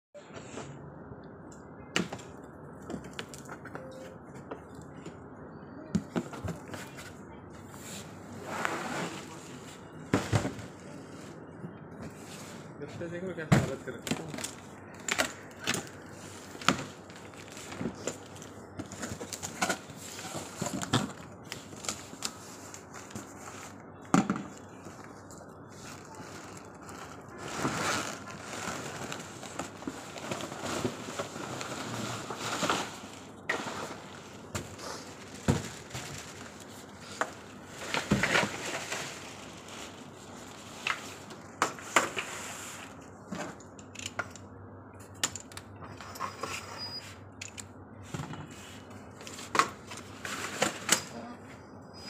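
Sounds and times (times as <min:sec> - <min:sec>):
plastic wrapping crinkling: 0:24.6 - 0:41.6.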